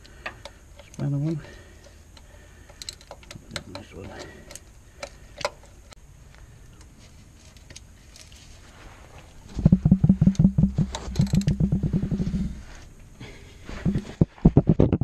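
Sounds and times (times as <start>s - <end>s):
ratchet spanner clicking: 1.8s - 5.8s, 10.3s - 11.9s.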